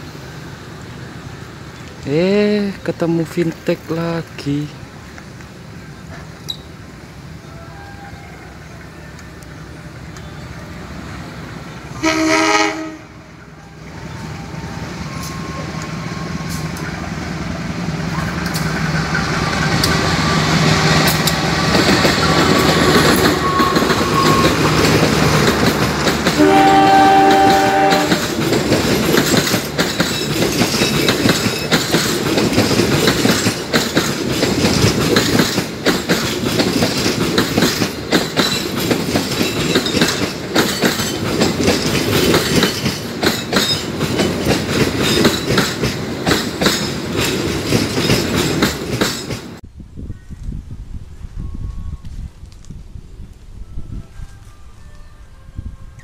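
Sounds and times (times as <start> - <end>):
train engine rumble: 0.0 - 56.0
locomotive horn blasts: 12.0 - 13.2, 26.4 - 28.3
train wheels clacking over rails: 15.2 - 49.6.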